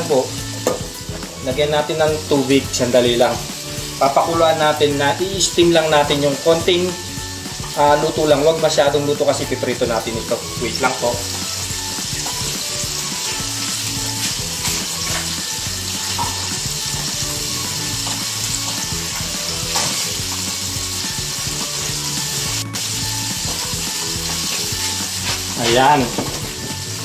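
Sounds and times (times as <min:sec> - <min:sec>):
food sizzling in oil: 0:00.0 - 0:27.0.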